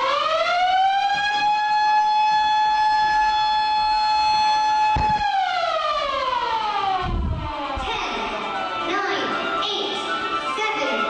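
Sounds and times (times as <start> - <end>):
siren wailing: 0.0 - 11.0
low thump: 4.9 - 5.4, 7.0 - 8.0.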